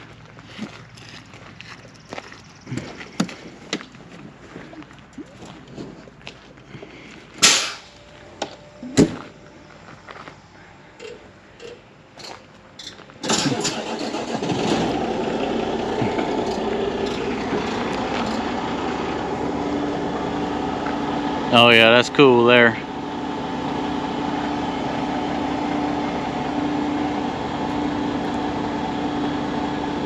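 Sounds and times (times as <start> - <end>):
diesel truck engine starting and idling: 6.7 - 30.0.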